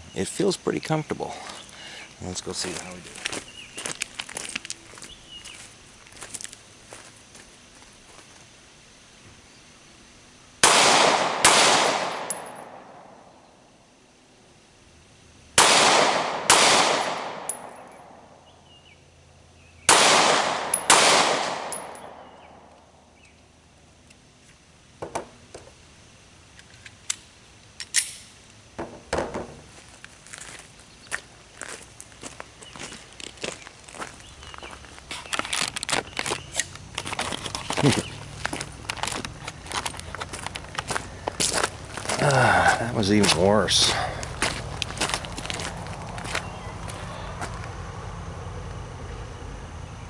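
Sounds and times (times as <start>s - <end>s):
pistol shots echoing: 10.6s - 13.2s, 15.6s - 18.2s, 19.9s - 22.6s.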